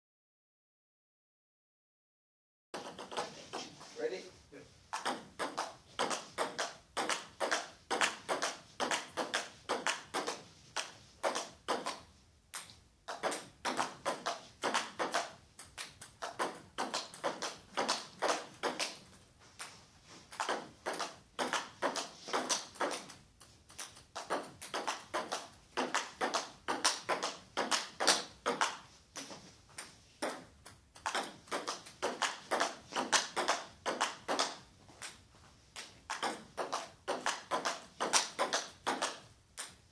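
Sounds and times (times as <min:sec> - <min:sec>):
table tennis ball clicking: 0:04.9 - 0:19.0, 0:20.3 - 0:35.2, 0:35.8 - 0:39.8.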